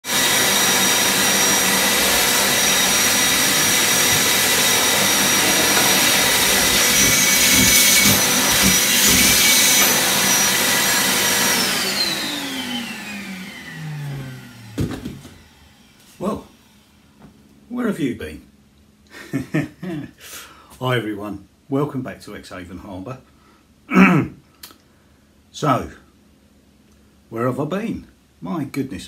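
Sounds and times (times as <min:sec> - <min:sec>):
vacuum cleaner running: 0:00.0 - 0:17.3.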